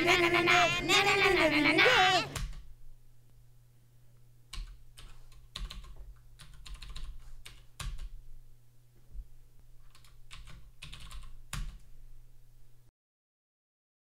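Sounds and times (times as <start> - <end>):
faint low hum: 0.0 - 12.9
keyboard typing: 4.5 - 8.2, 9.8 - 11.9.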